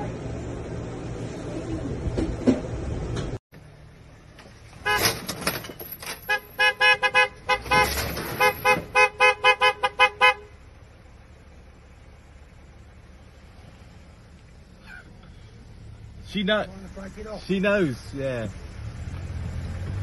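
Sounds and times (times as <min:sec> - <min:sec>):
car horn short blasts: 0:04.8 - 0:05.3, 0:06.2 - 0:10.5.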